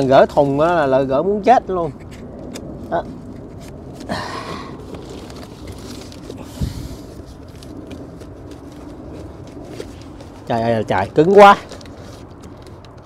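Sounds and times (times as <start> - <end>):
tape and cardboard scraping: 1.8 - 13.0.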